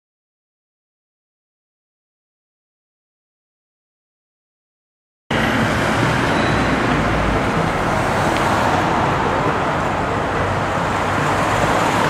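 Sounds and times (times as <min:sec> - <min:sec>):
cars passing: 0:05.3 - 0:12.0.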